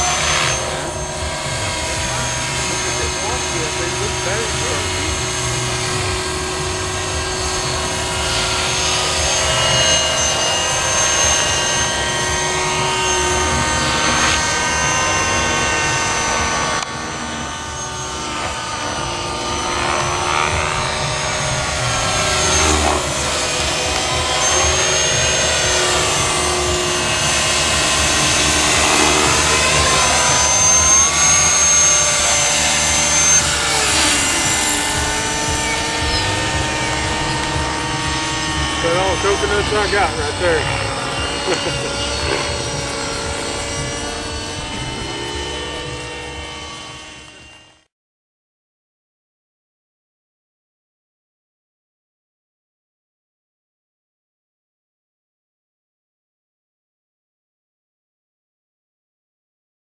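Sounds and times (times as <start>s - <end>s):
rc helicopter motor whine: 0.0s - 47.9s.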